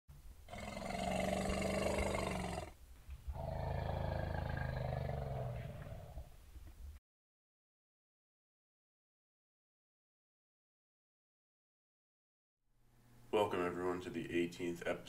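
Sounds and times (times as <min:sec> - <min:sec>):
large animal roaring: 0:00.5 - 0:06.3.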